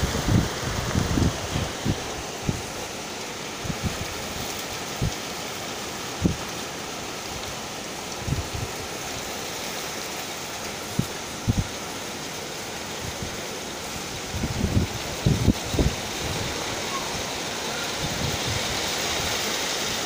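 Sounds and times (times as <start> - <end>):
wind buffeting microphone: 0.0 - 2.8, 3.6 - 5.2, 8.1 - 8.8, 10.9 - 11.8, 14.1 - 19.4
heavy rain hissing: 0.0 - 20.0.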